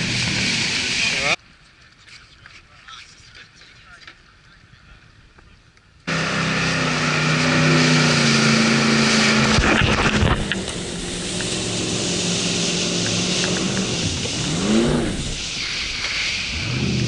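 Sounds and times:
water rushing and spraying: 0:00.0 - 0:01.4, 0:06.1 - 0:17.0
boat engine running hard: 0:06.1 - 0:15.5.

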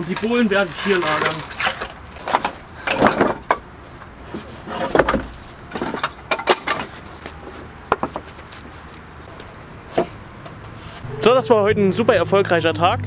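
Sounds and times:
wooden planks clattering: 0:00.0 - 0:08.9.

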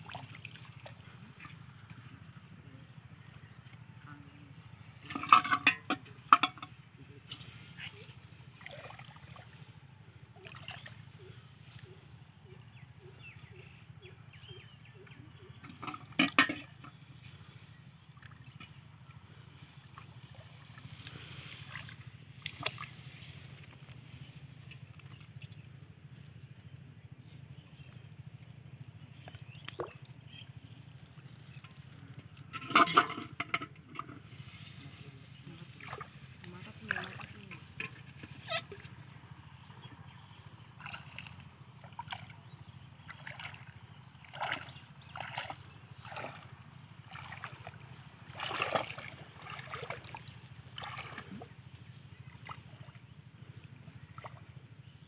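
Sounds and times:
water splashing in a metal pot: 0:05.0 - 0:06.8, 0:15.6 - 0:17.0, 0:21.7 - 0:23.0, 0:31.5 - 0:34.2, 0:43.1 - 0:51.5.

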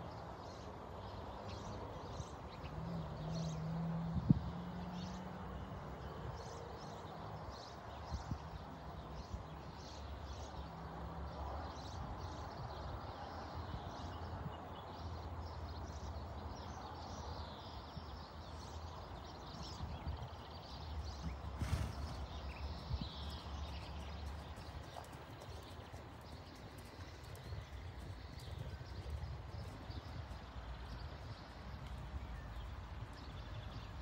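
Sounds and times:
pony hoofbeats on sand: 0:21.1 - 0:30.5.

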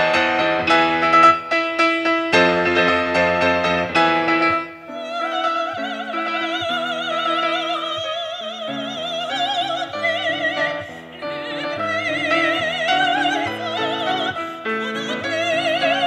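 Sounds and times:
grand piano: 0:00.0 - 0:16.0
soprano singing with vibrato: 0:04.2 - 0:16.0.

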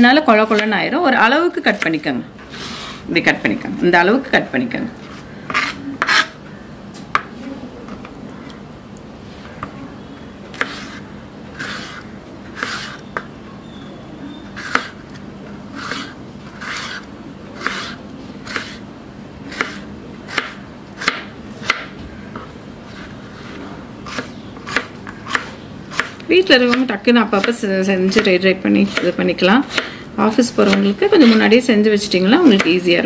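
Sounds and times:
knife chopping on cutting board: 0:05.5 - 0:06.4, 0:14.6 - 0:15.0, 0:17.6 - 0:18.8, 0:19.5 - 0:21.9, 0:23.0 - 0:28.3, 0:28.9 - 0:29.9.

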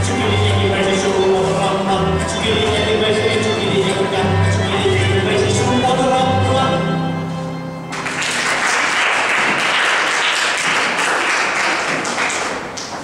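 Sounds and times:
folk dance music: 0:00.0 - 0:13.0
audience applause: 0:07.9 - 0:13.0.

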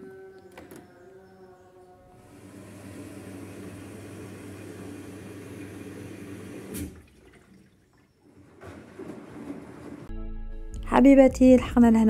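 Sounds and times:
water rushing into washing machine: 0:02.2 - 0:10.1.

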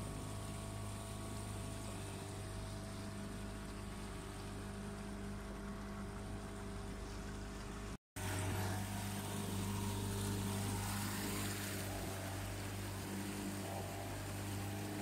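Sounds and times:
boat motor low drone: 0:00.0 - 0:15.0
water rushing: 0:00.0 - 0:15.0.

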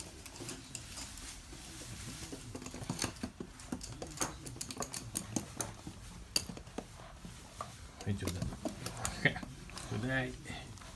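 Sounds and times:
dog claws clicking on hard floor: 0:02.1 - 0:10.0.

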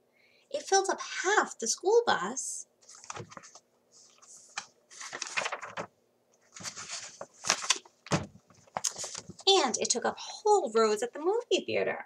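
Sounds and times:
paper rustling and crinkling: 0:02.8 - 0:09.6.

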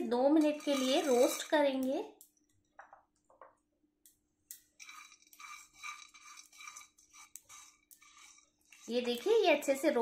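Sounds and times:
spatula scraping in a pan: 0:00.0 - 0:01.9, 0:04.6 - 0:10.0
seeds ticking into a pan: 0:00.3 - 0:02.9.

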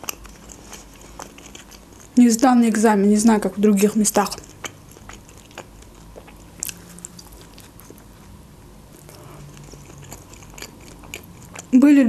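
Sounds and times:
mouth chewing with wet clicks: 0:00.0 - 0:02.2, 0:03.8 - 0:08.1, 0:08.9 - 0:11.8.

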